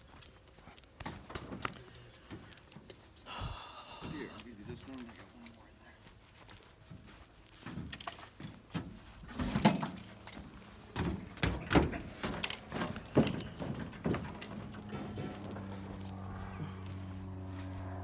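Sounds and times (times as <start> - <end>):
metal clanks and rattles: 7.6 - 16.8.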